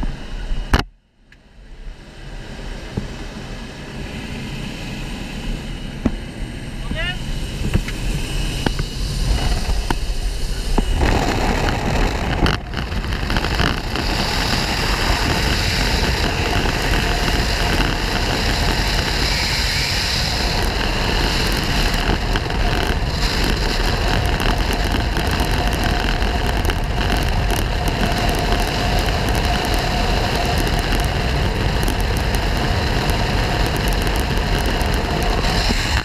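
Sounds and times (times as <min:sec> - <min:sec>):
propeller plane engine: 0:00.0 - 0:36.0
slipstream wind rushing: 0:07.2 - 0:36.0.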